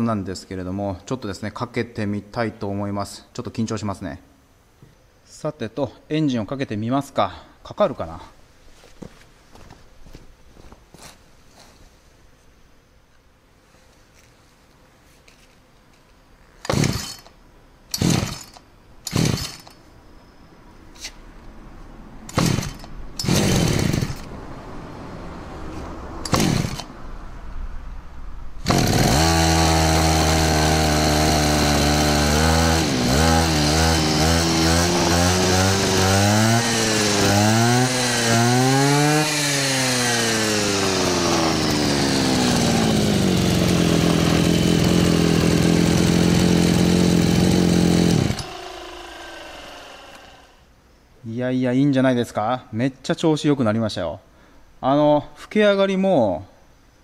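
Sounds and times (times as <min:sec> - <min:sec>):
brush cutter engine revving: 0:16.6 - 0:19.8, 0:22.3 - 0:24.3, 0:26.2 - 0:27.0, 0:28.6 - 0:50.6
recoil starter pulls: 0:16.6 - 0:19.8, 0:22.3 - 0:24.3, 0:26.2 - 0:26.9, 0:28.6 - 0:50.6.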